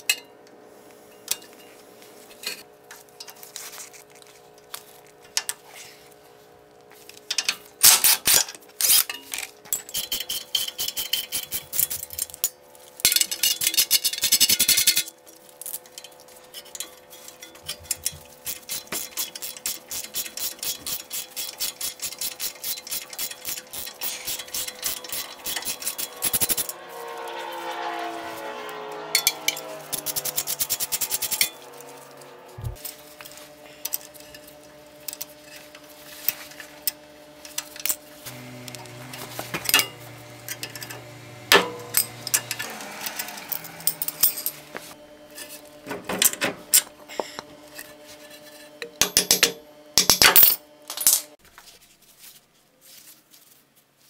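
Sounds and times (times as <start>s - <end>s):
pliers metallic clinks and scrapes: 7.3s - 26.8s, 39.7s - 44.6s
hand ratchet clicking: 9.9s - 12.1s, 17.9s - 26.8s, 29.9s - 31.5s.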